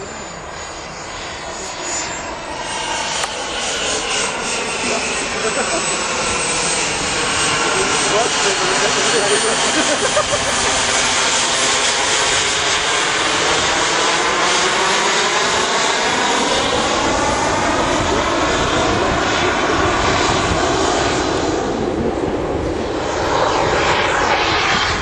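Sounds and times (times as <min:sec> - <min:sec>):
model jet engine rushing overhead: 0:00.0 - 0:25.0.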